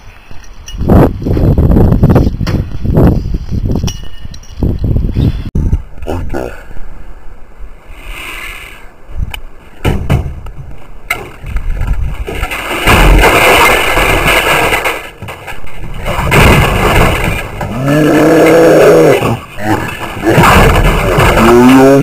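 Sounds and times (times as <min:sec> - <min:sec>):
plastic and metal knocks: 0:09.8 - 0:10.4.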